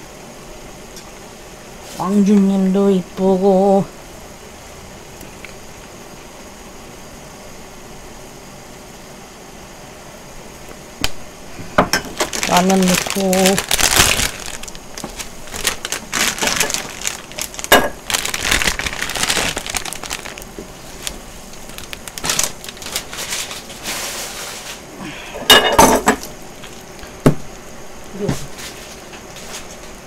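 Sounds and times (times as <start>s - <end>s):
foil packets crinkling: 11.4s - 24.8s, 25.8s - 27.2s.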